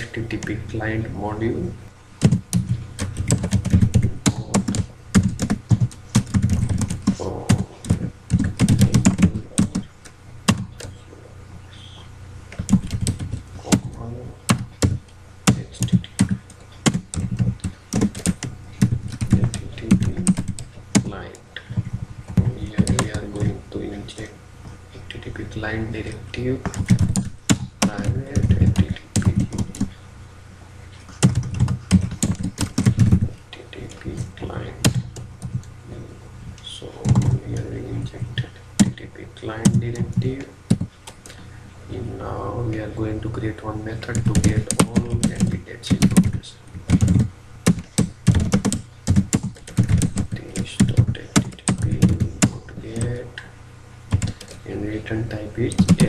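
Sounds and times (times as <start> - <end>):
keyboard typing: 2.2 - 11.0, 12.5 - 24.3, 26.0 - 29.9, 31.0 - 35.7, 37.0 - 38.0, 38.8 - 39.0, 39.6 - 41.4, 44.0 - 53.2, 54.1 - 54.6, 55.6 - 56.0.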